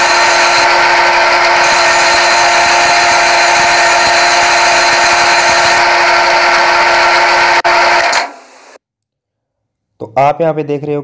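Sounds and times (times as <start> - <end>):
lathe machine hum: 0.0 - 8.8
tool cutting metal: 0.0 - 8.8.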